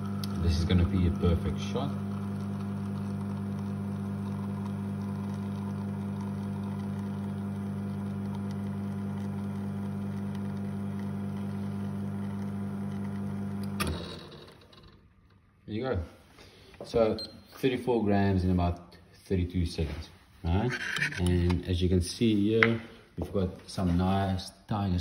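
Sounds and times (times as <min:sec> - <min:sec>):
espresso machine pump humming: 0:00.0 - 0:14.8.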